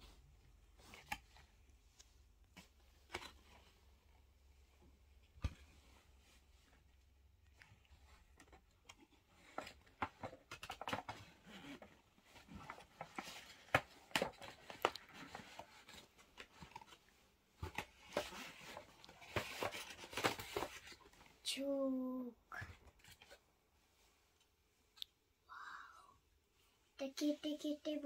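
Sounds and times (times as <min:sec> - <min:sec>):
cardboard box handling noises: 0:08.0 - 0:21.4.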